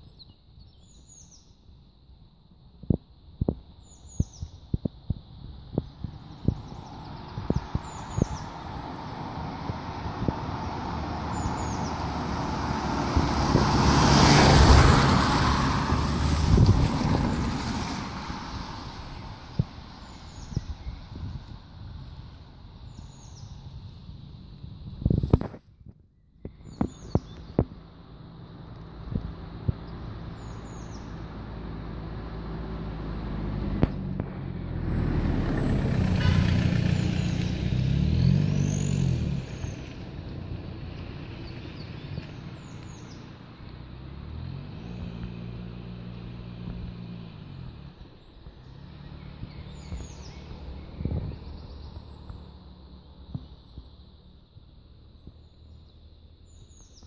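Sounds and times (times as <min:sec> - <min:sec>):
van passing by: 0:05.8 - 0:25.5, 0:26.7 - 0:56.8
tyre hiss on asphalt: 0:06.1 - 0:25.7.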